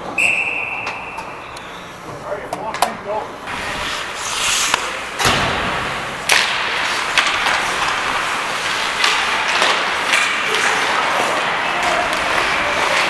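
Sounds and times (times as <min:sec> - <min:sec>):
ice skates scraping ice: 0:03.5 - 0:05.2, 0:06.1 - 0:13.0.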